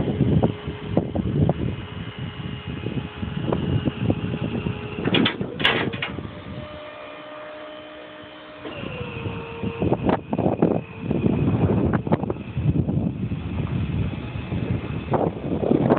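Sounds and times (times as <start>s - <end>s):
wind rumble on microphone: 0.0s - 7.0s, 8.7s - 15.9s
machinery humming: 0.0s - 15.9s.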